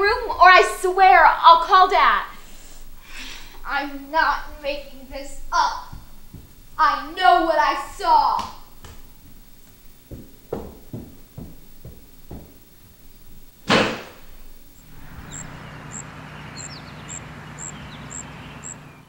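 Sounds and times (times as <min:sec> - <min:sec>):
footsteps walking: 0:00.0 - 0:15.6
background hiss: 0:00.0 - 0:19.0
door slamming shut: 0:13.6 - 0:14.3.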